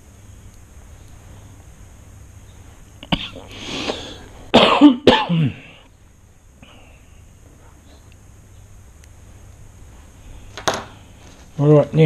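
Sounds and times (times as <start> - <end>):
person coughing: 3.0 - 3.5, 4.5 - 5.8.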